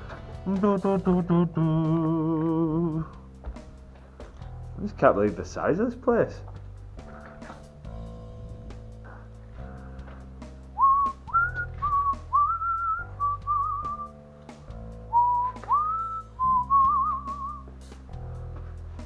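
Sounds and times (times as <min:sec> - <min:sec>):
background music of sustained chords: 0:00.0 - 0:12.4
person whistling a tune: 0:10.7 - 0:14.1, 0:15.1 - 0:17.7.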